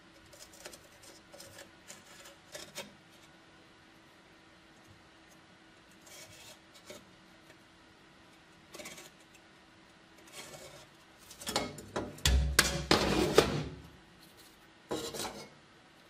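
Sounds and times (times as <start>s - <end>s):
marker scratching on metal: 6.0s - 7.1s.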